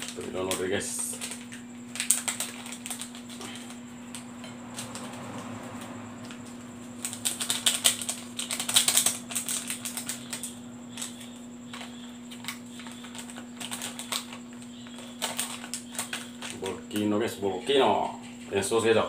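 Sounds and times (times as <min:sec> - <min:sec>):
plastic sachet crinkling: 0:00.0 - 0:04.2, 0:06.2 - 0:17.1
plastic bag crinkling: 0:00.0 - 0:05.5, 0:06.2 - 0:17.3.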